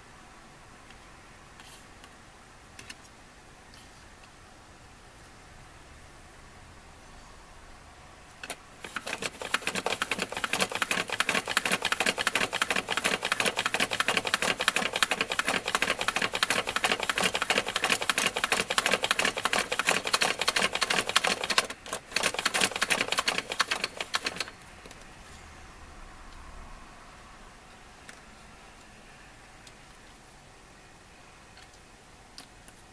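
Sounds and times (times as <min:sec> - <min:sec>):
toy crank clatter of plastic clicks: 0:08.4 - 0:24.5.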